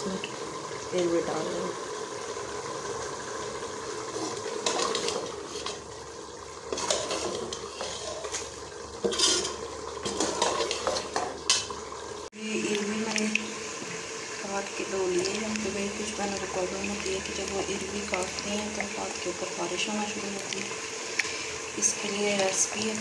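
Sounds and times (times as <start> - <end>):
curry sizzling: 0.0 - 23.0
ladle scraping a metal pot: 4.1 - 5.9, 6.7 - 11.7.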